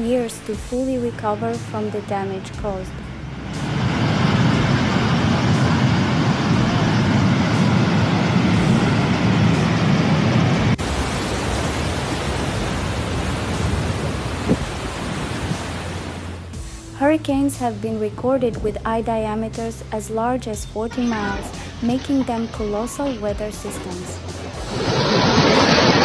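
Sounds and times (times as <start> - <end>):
flood water rushing: 10.4 - 16.5, 21.0 - 26.0
floodwater running over street: 10.8 - 16.5, 21.0 - 26.0.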